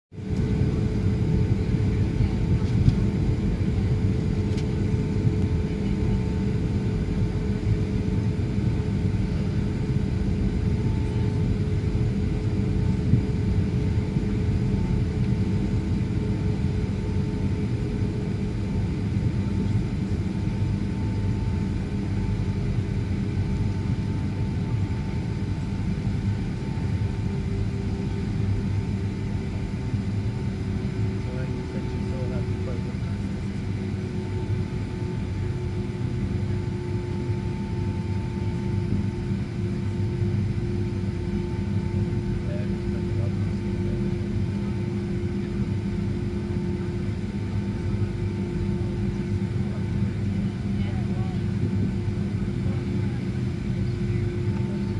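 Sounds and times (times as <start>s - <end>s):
jet engines low rumble: 0.1s - 54.9s
constant hum tone: 0.2s - 54.9s.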